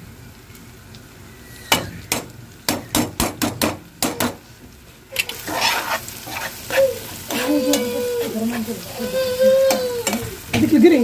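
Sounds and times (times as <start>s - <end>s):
vegetables sizzling: 0.0s - 11.0s
metal spoon knocking on pan: 1.8s - 4.4s
spoon scraping pan: 5.2s - 10.4s.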